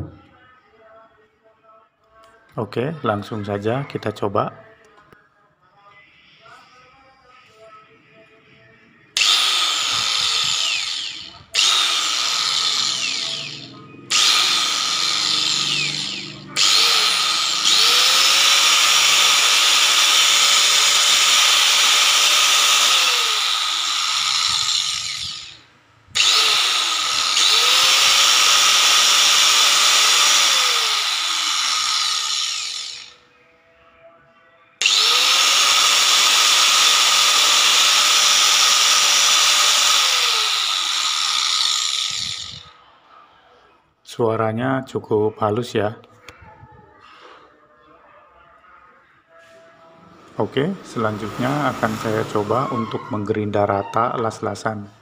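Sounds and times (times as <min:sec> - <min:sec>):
angle grinder whining: 0:09.2 - 0:33.2, 0:34.8 - 0:43.2, 0:50.6 - 0:54.4.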